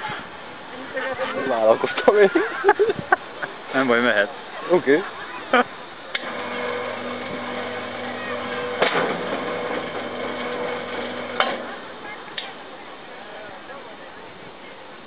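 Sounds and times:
small motor whirring: 0:06.2 - 0:11.4.

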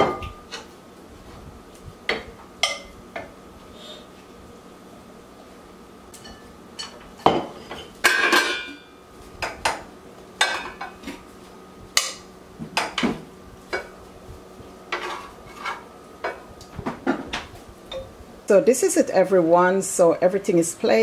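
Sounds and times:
metal utensils clinking on pots: 0:07.6 - 0:08.8.

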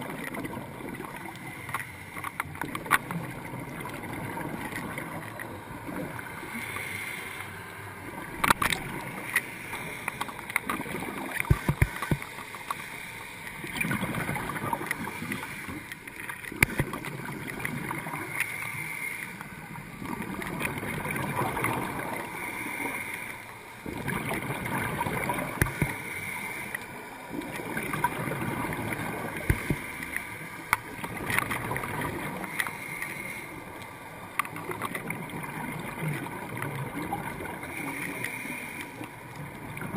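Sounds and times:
exhaled bubbles gurgling underwater: 0:00.0 - 0:39.9
regulator inhale hiss: 0:01.3 - 0:02.4, 0:06.3 - 0:08.0, 0:09.2 - 0:10.6, 0:18.2 - 0:19.6, 0:22.2 - 0:23.7, 0:25.7 - 0:27.1, 0:29.3 - 0:30.7, 0:32.4 - 0:34.1, 0:37.6 - 0:39.1
sharp clicks and knocks: 0:08.4 - 0:12.8.

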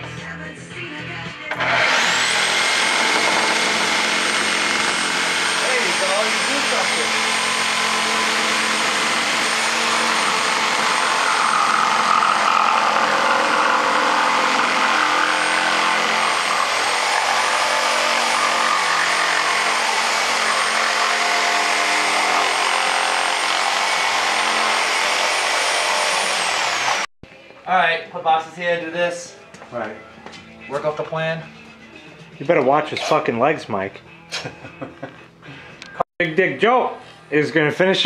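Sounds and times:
reciprocating saw cutting plastic pipe: 0:01.5 - 0:27.1.

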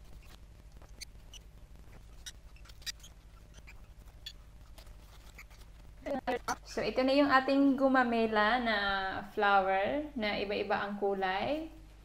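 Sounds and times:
paper crinkling: 0:00.0 - 0:06.2
low steady hum: 0:00.0 - 0:12.0.

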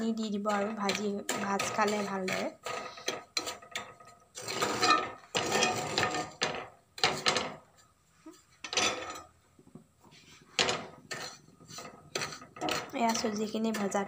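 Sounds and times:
spoon scraping frying pan: 0:00.0 - 0:07.3, 0:10.1 - 0:14.0.

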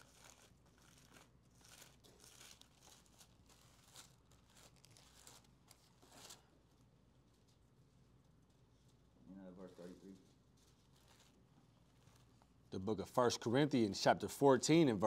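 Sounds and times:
thin pages being flipped: 0:00.0 - 0:07.7, 0:10.2 - 0:12.6.

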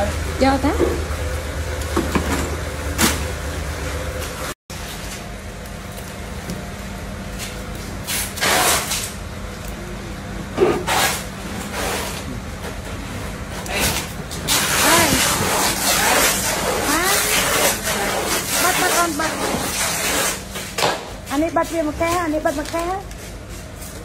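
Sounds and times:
people talking: 0:00.0 - 0:01.0, 0:14.8 - 0:15.4, 0:16.7 - 0:17.7, 0:18.6 - 0:19.6, 0:21.3 - 0:23.1
steady low hum: 0:00.0 - 0:24.0.

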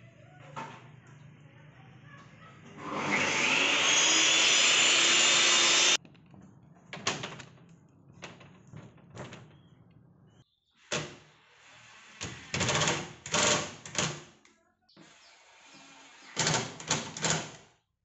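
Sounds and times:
woodworking power tool running: 0:02.7 - 0:06.0.

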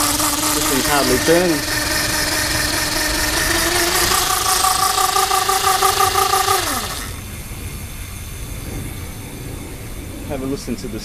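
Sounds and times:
electric motor whine: 0:00.0 - 0:07.9.

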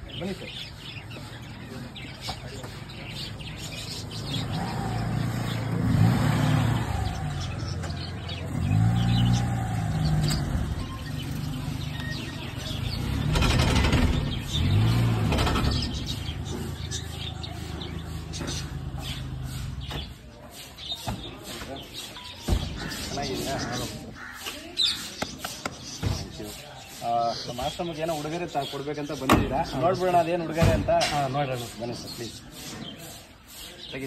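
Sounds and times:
van engine running: 0:03.0 - 0:20.1.

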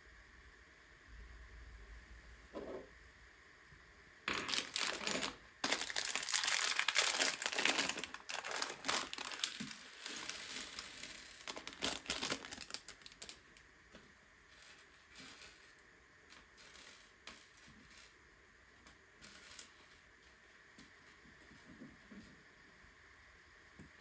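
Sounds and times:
plastic bag crinkling: 0:04.3 - 0:13.6.

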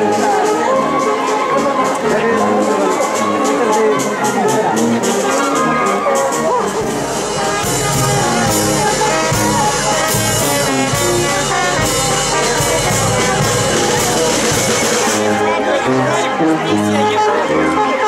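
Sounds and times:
brass band playing: 0:00.0 - 0:18.0
sousaphone bass: 0:01.0 - 0:17.7
drum and cymbal beat: 0:02.5 - 0:15.5.

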